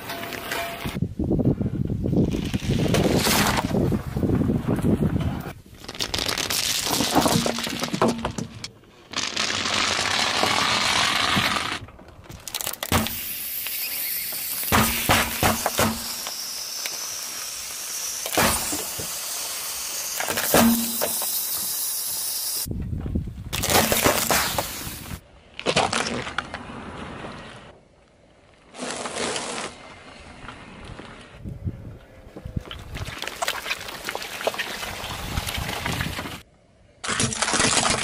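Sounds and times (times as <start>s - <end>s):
car tyre crushing objects: 5.7s - 17.0s, 23.5s - 26.9s, 37.0s - 38.0s
glass marbles cracking and crunching: 5.8s - 8.0s, 37.0s - 38.0s.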